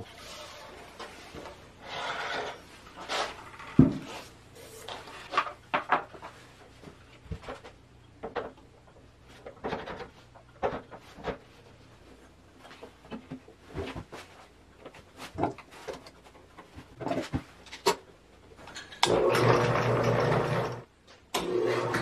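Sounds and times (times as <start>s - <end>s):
wooden parts knocking and clunking: 3.5s - 4.1s, 5.2s - 6.4s, 7.2s - 11.6s.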